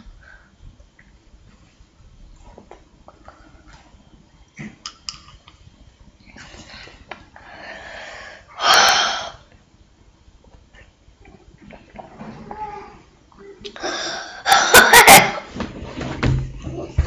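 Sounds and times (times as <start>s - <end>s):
boy exhaling hard: 7.8s - 9.4s
mouth clicks: 8.6s - 9.3s.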